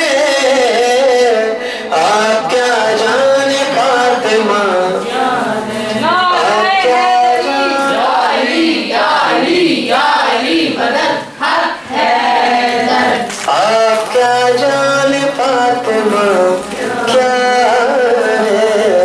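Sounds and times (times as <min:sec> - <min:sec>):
man chanting melodically: 0:00.0 - 0:08.3, 0:12.9 - 0:19.0.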